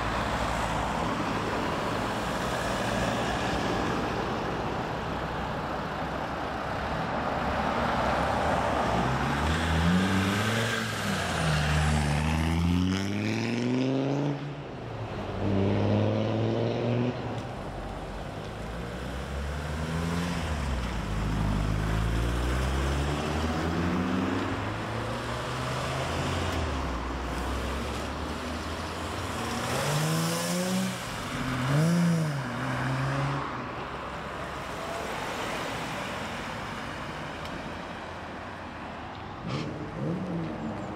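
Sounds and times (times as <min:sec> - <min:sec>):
cars accelerating past: 0:07.4 - 0:14.6, 0:15.2 - 0:17.4, 0:18.9 - 0:33.8, 0:39.4 - 0:40.9.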